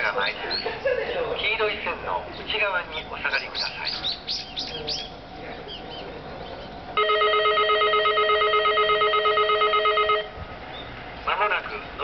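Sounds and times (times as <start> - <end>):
electronic warning bell ringing: 7.0 - 10.4.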